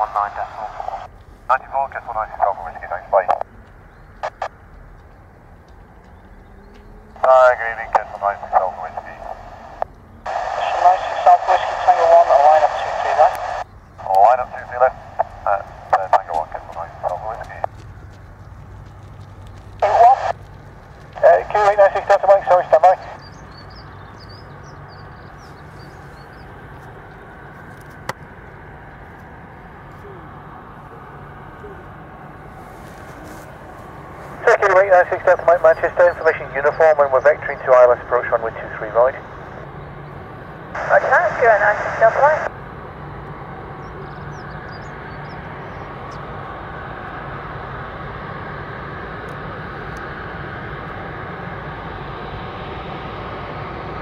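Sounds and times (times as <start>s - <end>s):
distant jet engines humming: 0.0s - 54.0s
small bird chirping: 23.2s - 26.5s.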